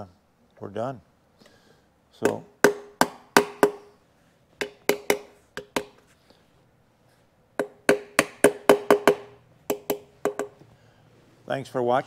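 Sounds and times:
metal taps on wheel rim: 7.6s - 10.7s.

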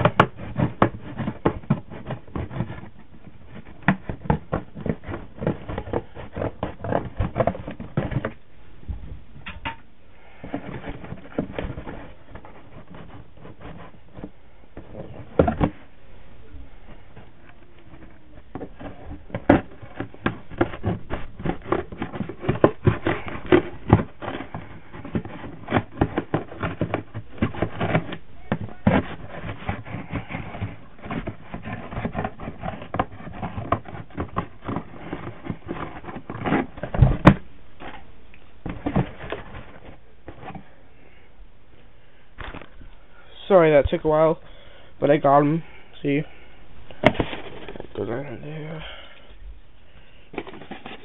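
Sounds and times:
cardboard being cut: 0.0s - 8.4s, 10.6s - 15.8s, 17.6s - 38.0s
thump: 36.9s - 37.4s.

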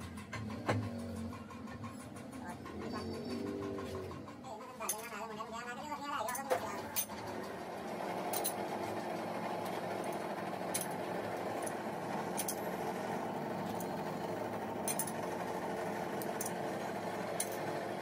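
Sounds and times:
metal lathe humming: 6.8s - 18.0s.

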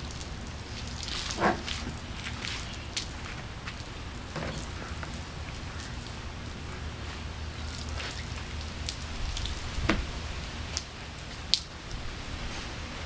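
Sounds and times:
water dripping and pattering: 0.0s - 12.2s
wet sponge wiping car: 0.6s - 4.0s.

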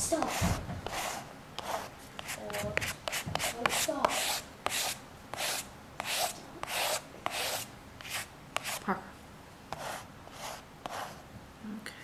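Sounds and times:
scraper rubbing over paper: 0.1s - 8.8s.

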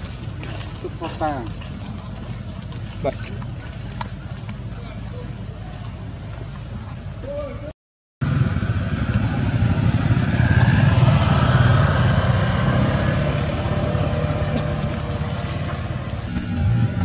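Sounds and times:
vehicle engine passing: 8.2s - 17.0s.

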